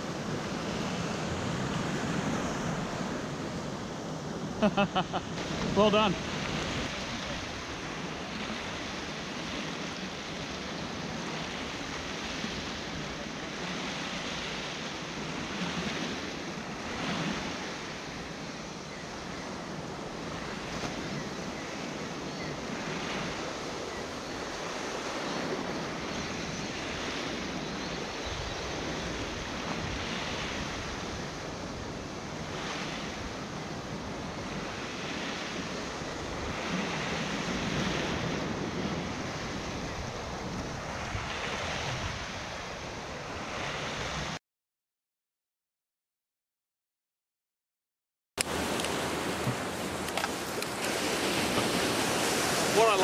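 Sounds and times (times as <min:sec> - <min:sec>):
surf lapping against rock wall: 0:04.5 - 0:18.1, 0:48.4 - 0:53.0.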